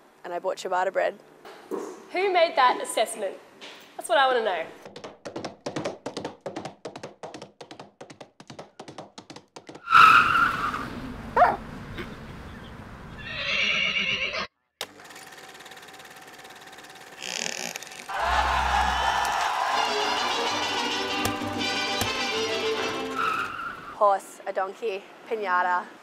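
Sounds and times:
rapid even clicking: 4.8 - 9.8
horse whinnying: 13.2 - 14.5.

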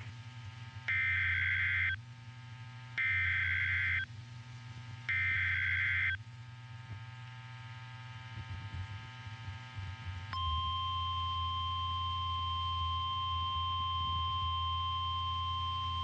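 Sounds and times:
steady low hum: 0.0 - 16.0
buzzy digital data tones: 0.9 - 2.0.

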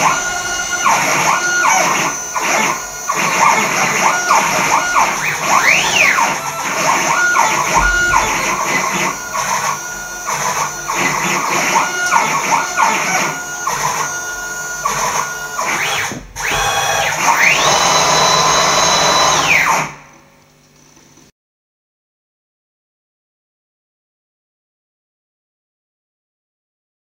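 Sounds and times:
motors whining: 0.0 - 20.1.

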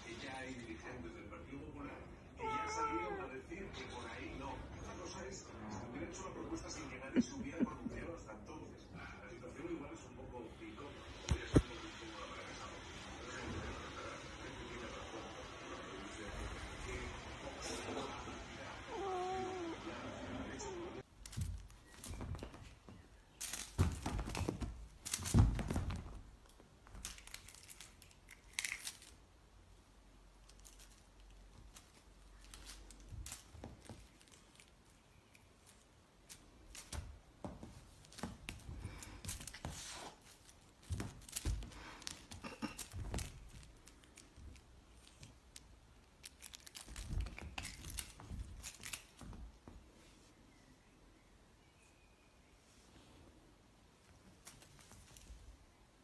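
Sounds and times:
cats scuffling on rug: 21.0 - 29.1, 30.4 - 50.6, 52.7 - 55.7.

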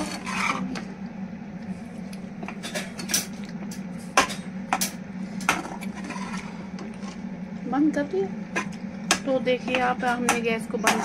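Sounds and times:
spatula scraping a pan: 0.0 - 0.8, 5.5 - 7.2
low hum: 0.0 - 11.0.

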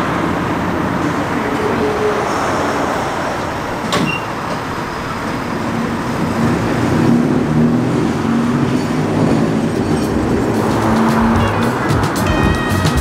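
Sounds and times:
streetcar mechanical hum: 0.0 - 13.0.

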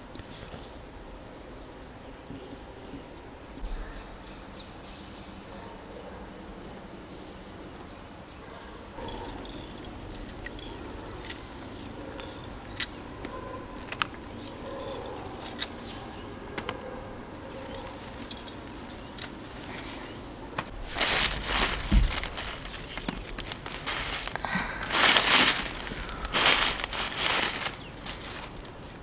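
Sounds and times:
loud crinkling and rustling: 9.0 - 29.0.

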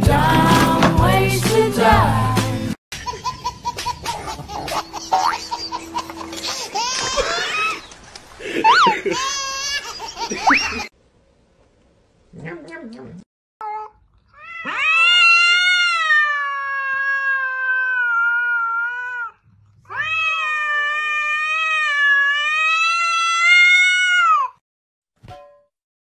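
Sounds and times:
cat yowling: 13.6 - 24.6.

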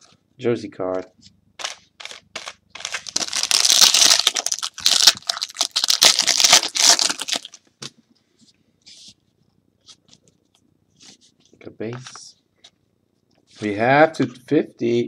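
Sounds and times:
foil wrapper crinkling and tearing: 1.6 - 7.6.

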